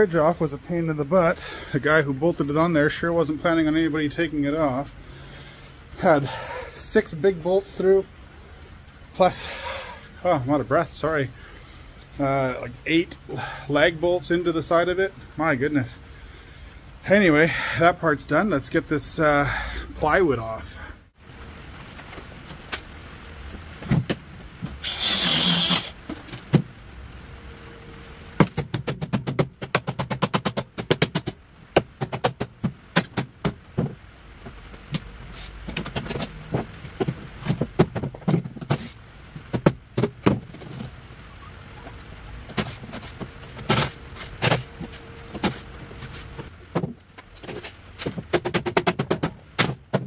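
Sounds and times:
short harsh rasp: 24.8s - 26.0s, 42.6s - 44.8s
knocks and taps on wood: 28.4s - 35.1s, 39.5s - 40.5s, 48.0s - 50.0s.

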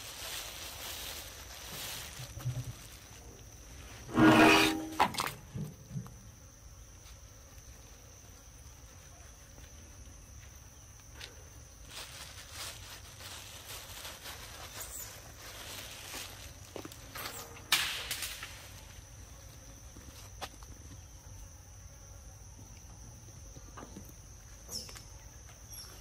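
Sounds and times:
faint rustling: 0.0s - 5.1s, 11.8s - 17.6s.

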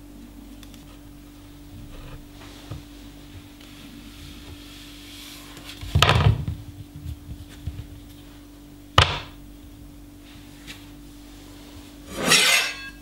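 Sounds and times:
faint steady hum: 0.0s - 13.0s
knocks on wooden board: 9.0s - 9.3s.

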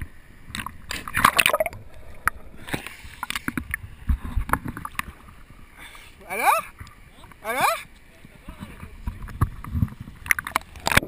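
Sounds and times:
water splash: 0.0s - 7.9s
water lapping against camera housing: 0.0s - 11.0s
small knocks and gurgles: 0.5s - 5.5s, 8.2s - 11.0s.

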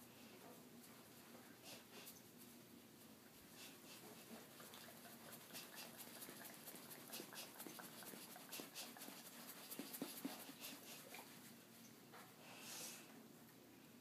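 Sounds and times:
dog claws scratching fur: 4.7s - 10.8s.

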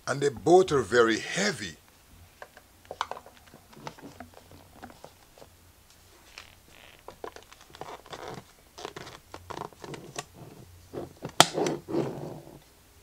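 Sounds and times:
plastic wrap crinkling: 2.9s - 10.4s.

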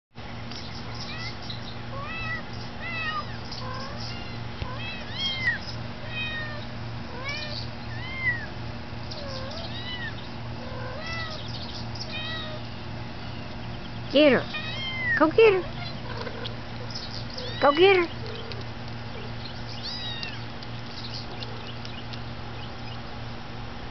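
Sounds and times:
steady low hum: 0.2s - 23.9s
kitten mewing: 9.2s - 11.4s, 14.5s - 16.4s.

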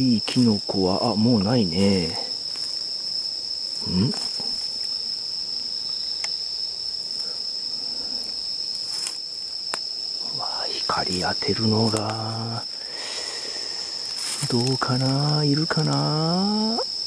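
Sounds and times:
night insects trilling: 0.0s - 17.0s
murmured voice: 3.8s - 4.6s
faint clicks: 11.9s - 12.2s.

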